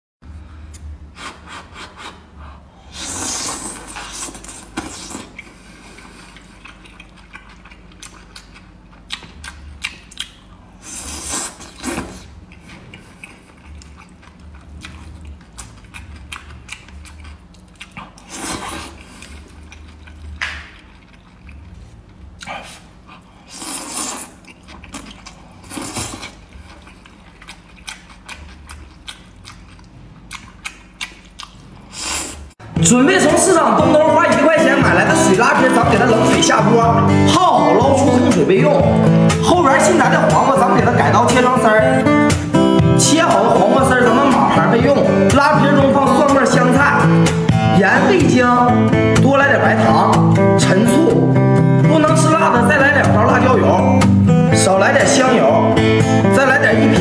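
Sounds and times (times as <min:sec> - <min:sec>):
loud noodle slurps: 0:02.8 - 0:06.4, 0:10.8 - 0:12.3, 0:18.2 - 0:19.4, 0:23.4 - 0:26.5
wet chewing: 0:03.0 - 0:32.5
lip smacks: 0:03.5 - 0:10.6, 0:11.2 - 0:21.6, 0:24.0 - 0:32.1.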